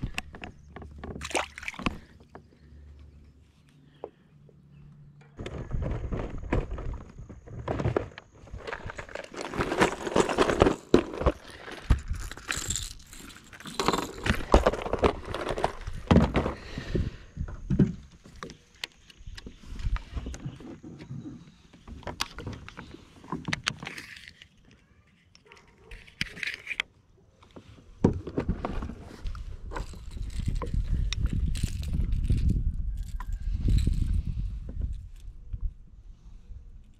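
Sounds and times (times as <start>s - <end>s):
fishing tackle clicks and rustling: 0.0s - 3.8s, 8.0s - 16.5s, 18.1s - 26.9s, 28.7s - 35.4s.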